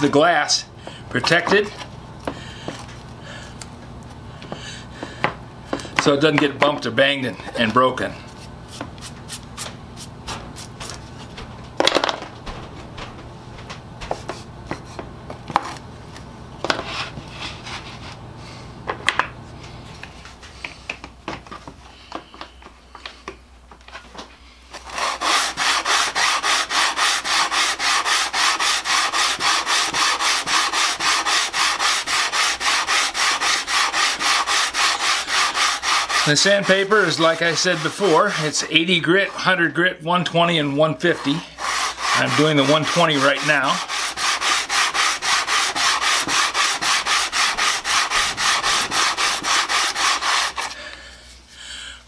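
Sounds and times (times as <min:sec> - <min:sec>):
hand plane rubbing on sandpaper: 0:24.7 - 0:39.4, 0:40.8 - 0:50.8.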